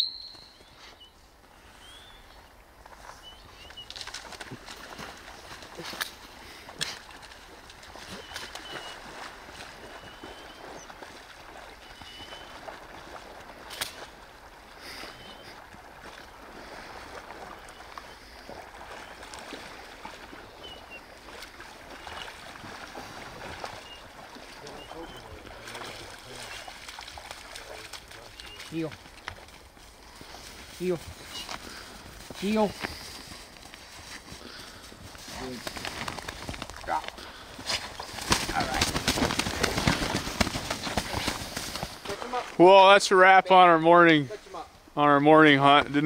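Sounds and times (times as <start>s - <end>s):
short high chirps: 0.0s - 1.1s
creek water running: 0.4s - 46.0s
dog splashing through water: 3.5s - 33.1s, 35.2s - 42.5s.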